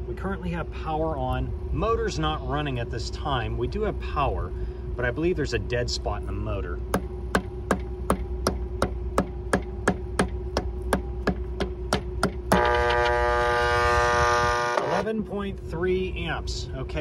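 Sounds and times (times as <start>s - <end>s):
hammer tapping on motor: 6.9s - 13.1s
electric motor humming: 12.2s - 15.1s.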